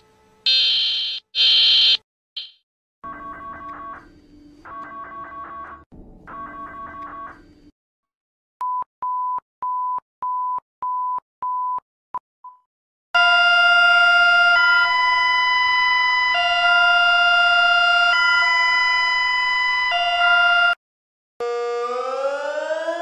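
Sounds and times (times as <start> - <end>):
emergency alert tone: 13.2 - 20.8.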